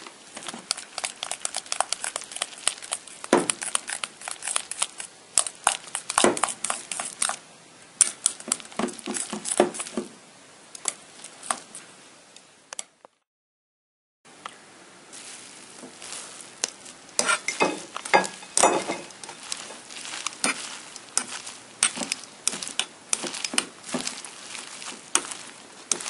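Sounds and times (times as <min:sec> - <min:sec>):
utensil clicking in metal bowl: 0:00.7 - 0:07.4.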